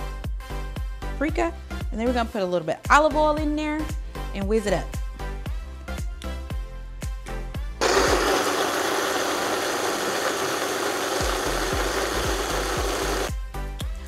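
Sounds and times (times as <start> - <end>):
background music with steady beat: 0.0 - 7.8, 11.0 - 14.0
blender running: 7.8 - 13.3.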